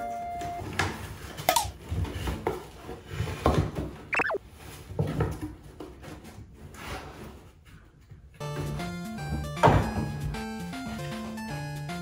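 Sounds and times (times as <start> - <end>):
cardboard boxes knocking and rustling: 0.6 - 4.1, 4.7 - 6.4
short high squeak: 4.2 - 4.4.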